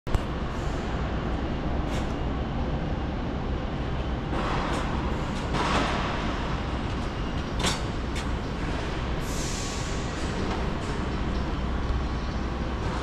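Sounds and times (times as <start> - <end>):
brief hissing: 9.2 - 10.0.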